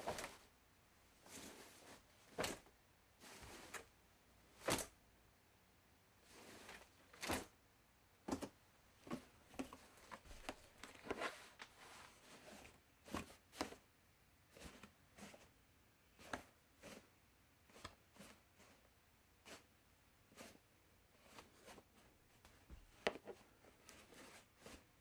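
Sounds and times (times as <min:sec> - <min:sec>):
clothes rustling and brushing: 0:00.0 - 0:00.5, 0:01.2 - 0:05.0, 0:06.2 - 0:07.6, 0:08.3 - 0:13.9, 0:19.5 - 0:25.0.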